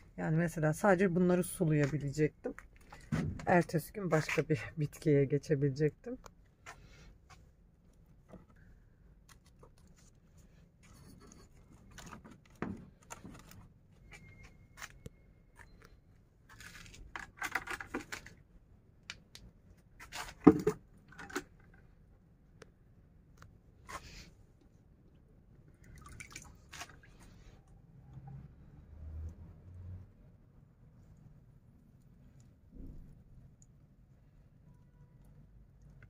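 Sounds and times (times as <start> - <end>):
plastic pots clicking and rustling: 1.7 - 3.6, 6.1 - 22.0.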